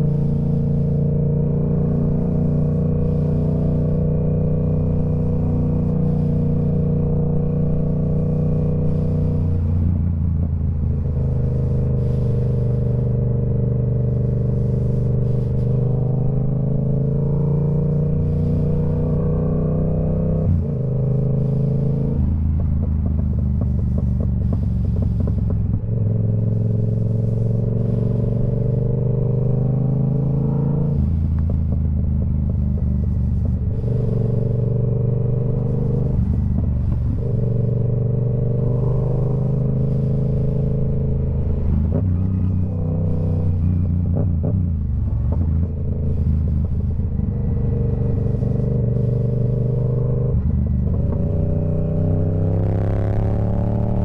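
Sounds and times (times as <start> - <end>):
motorcycle engine drone: 0.0 - 54.0.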